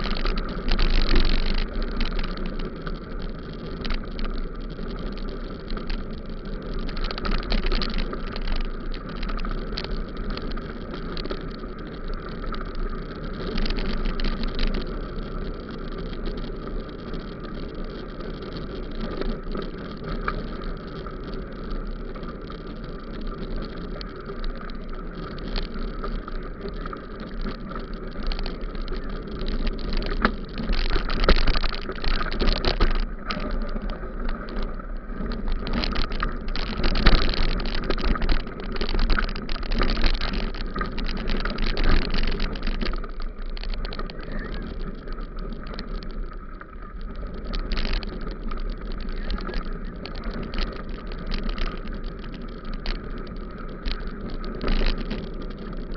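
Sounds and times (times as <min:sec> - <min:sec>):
bicycle tyres rumbling on gravel: 0:00.0 - 0:55.9
bike rattling and knocking: 0:00.0 - 0:55.9
wind: 0:00.0 - 0:55.9.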